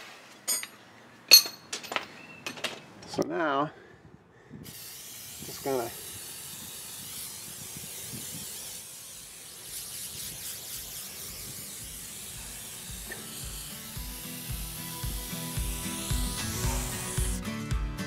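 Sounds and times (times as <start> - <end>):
aerosol can spraying: 4.7 - 17.8
background music with a beat: 14.0 - 18.0.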